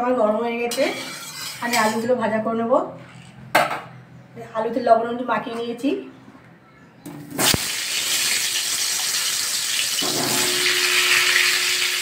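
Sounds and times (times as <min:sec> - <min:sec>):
high sizzle of frying: 0:07.4 - 0:12.0.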